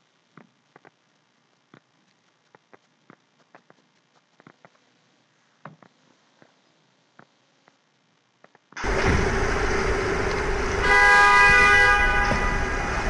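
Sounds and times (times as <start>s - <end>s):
city street traffic: 8.8s - 13.0s
car horn: 10.8s - 13.0s.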